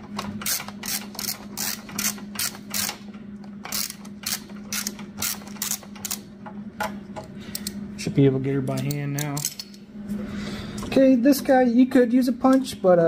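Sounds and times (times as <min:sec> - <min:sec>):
steady low hum: 0:00.0 - 0:13.0
socket ratchet clicking: 0:00.4 - 0:03.0, 0:03.7 - 0:06.2.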